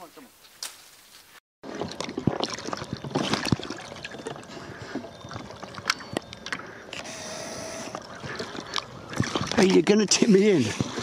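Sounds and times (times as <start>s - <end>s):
water splashing around kayak: 1.6s - 6.8s, 7.8s - 11.0s.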